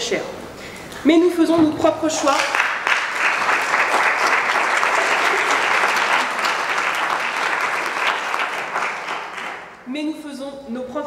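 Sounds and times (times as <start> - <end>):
audience applauding: 2.3 - 9.8.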